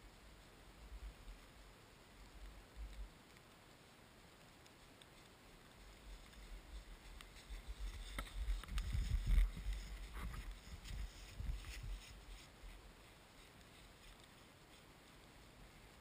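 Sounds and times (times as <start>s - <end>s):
footsteps crunching in snow: 5.2s - 16.0s.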